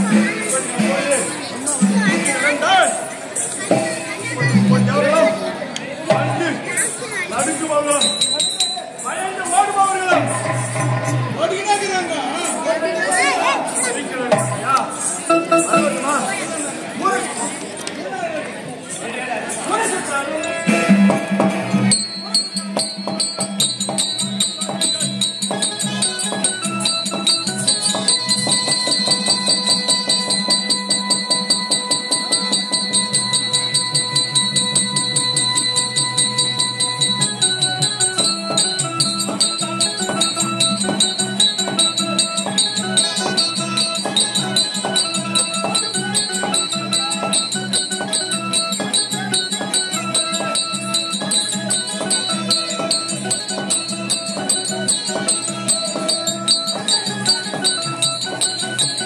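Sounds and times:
melody over the beat: 13.4 - 16.9, 20.6 - 59.0
jingling: 21.9 - 59.0.

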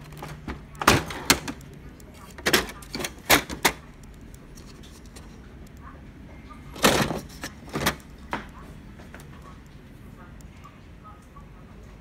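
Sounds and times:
plastic clatter: 0.0 - 3.9, 6.8 - 8.4
plastic printer covers clicking: 0.0 - 3.9, 6.8 - 8.1.

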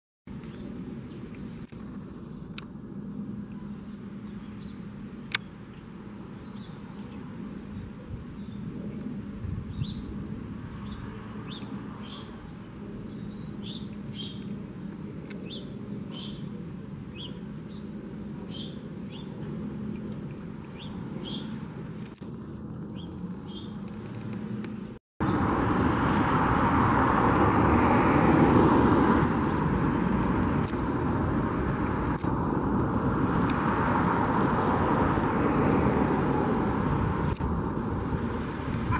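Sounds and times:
small birds chirping: 0.3 - 22.2, 22.8 - 25.6
distant jet engine rumble: 0.3 - 38.9
loud jet engine noise: 0.3 - 38.9.

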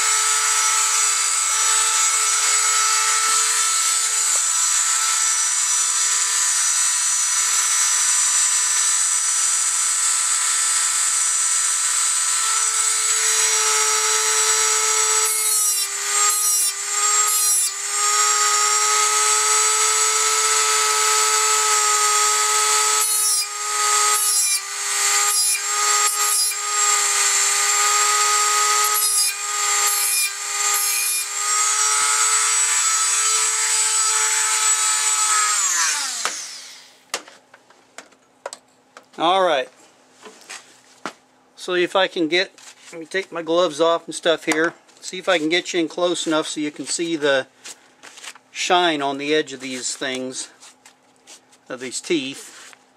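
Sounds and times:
rotary tool high whine: 0.0 - 37.0.

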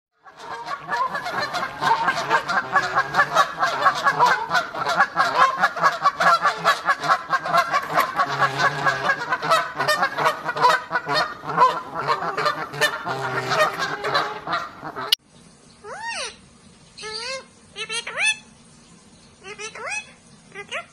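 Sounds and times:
geese honking: 0.2 - 15.2.

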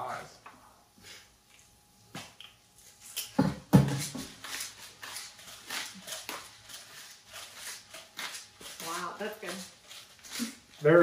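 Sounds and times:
pepper mill grinding: 3.1 - 11.0.

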